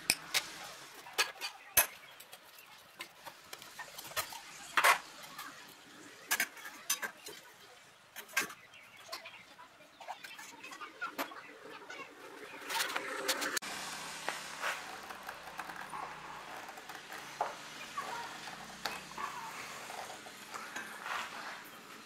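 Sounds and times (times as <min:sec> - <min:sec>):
light metal scraping: 0:14.3 - 0:22.0.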